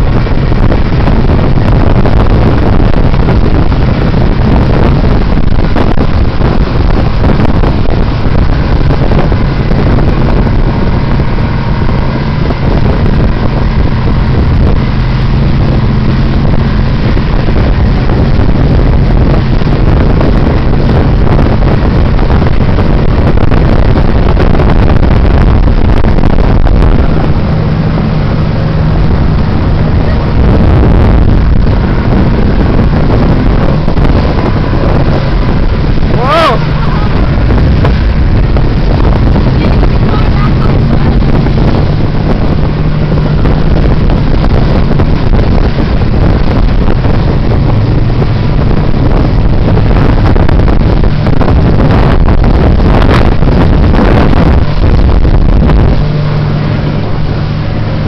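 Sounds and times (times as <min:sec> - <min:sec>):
motorboat engine drone: 0:00.0 - 0:58.0
rush of boat wake: 0:00.0 - 0:58.0
wind buffeting microphone: 0:00.0 - 0:58.0.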